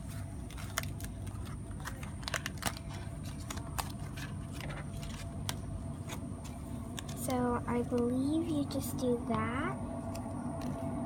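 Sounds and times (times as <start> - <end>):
low background rumble: 0.0 - 11.0
cardstock crinkling and clicking: 0.4 - 8.3.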